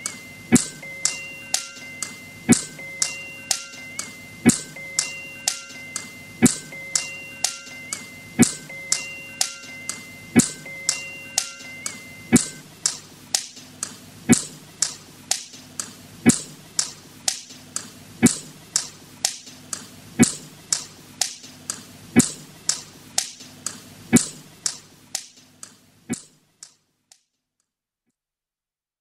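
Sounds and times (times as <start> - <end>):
electronic drum hits: 0.0 - 1.0, 2.5 - 3.7, 4.4 - 5.1, 6.4 - 7.0, 8.4 - 9.0, 10.4 - 10.7, 12.3 - 12.7.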